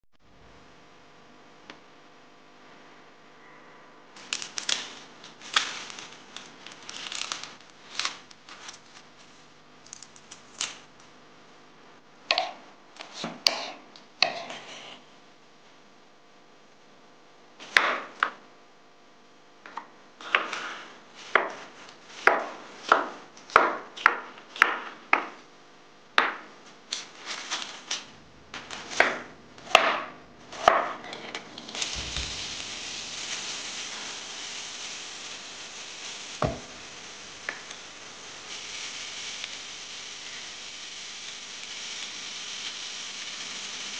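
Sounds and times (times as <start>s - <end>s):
steady hiss: 4.1s - 11.1s, 26.4s - 29.8s, 30.4s - 43.9s
knife chopping on wooden board: 13.2s - 14.5s, 22.2s - 25.4s, 29.0s - 31.0s.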